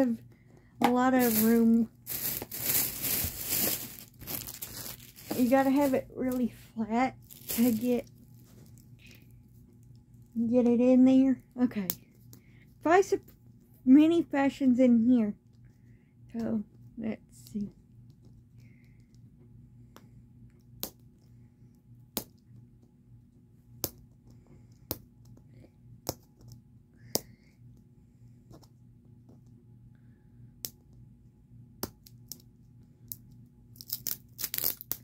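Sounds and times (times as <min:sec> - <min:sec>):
plastic capsule clicks and crinkles: 0:31.8 - 0:35.0.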